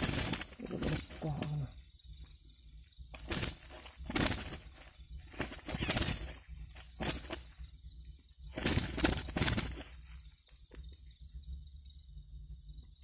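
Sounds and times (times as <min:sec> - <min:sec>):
bird wings fluttering against mesh: 0:00.0 - 0:01.7, 0:03.1 - 0:07.7, 0:08.4 - 0:10.8
cast net and dry grass rustling: 0:00.0 - 0:02.4, 0:03.1 - 0:10.8.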